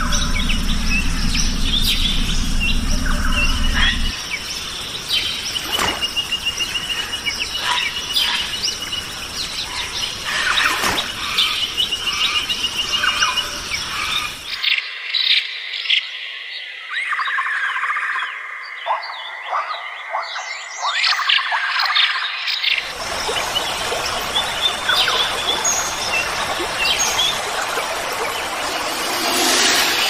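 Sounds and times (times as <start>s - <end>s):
low rumble: 0.0s - 4.5s, 28.4s - 30.0s
birds chirping and calling: 0.0s - 16.0s.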